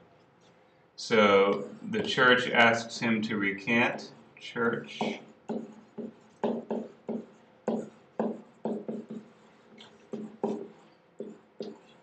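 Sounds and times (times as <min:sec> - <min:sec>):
pen knocking and scratching: 0:05.0 - 0:09.3, 0:09.9 - 0:11.8.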